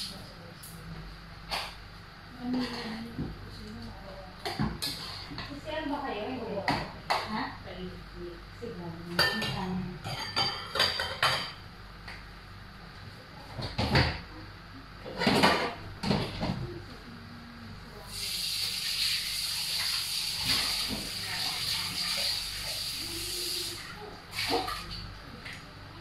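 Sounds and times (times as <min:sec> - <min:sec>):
pots and utensils clinking: 0:09.2 - 0:11.6
steady hiss: 0:18.0 - 0:24.4.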